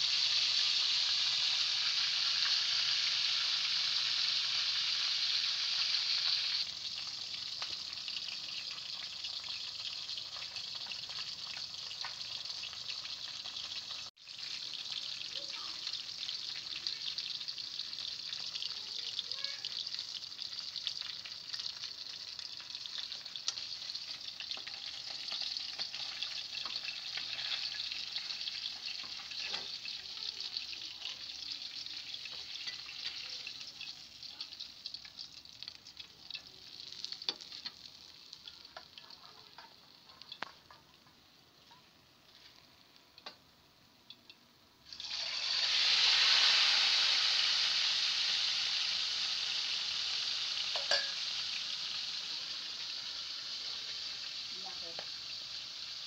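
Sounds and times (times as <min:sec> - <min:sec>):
fish sizzling in hot oil: 0:00.0 - 0:56.0
oil popping: 0:50.7 - 0:51.2.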